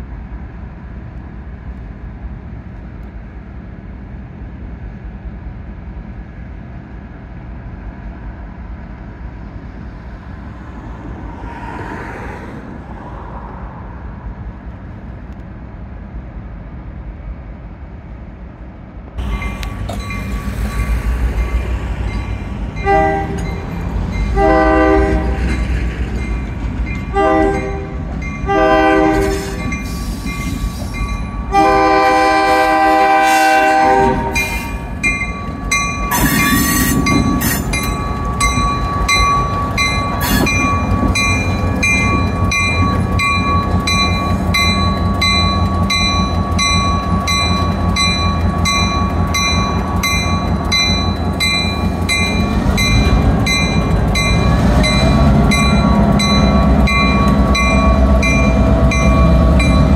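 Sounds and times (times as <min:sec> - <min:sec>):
locomotive bell ringing: 0:19.2 - 0:31.9, 0:34.3 - 0:59.9
locomotive horn: 0:22.8 - 0:25.6, 0:27.1 - 0:29.7, 0:31.5 - 0:34.8, 0:36.1 - 0:37.7.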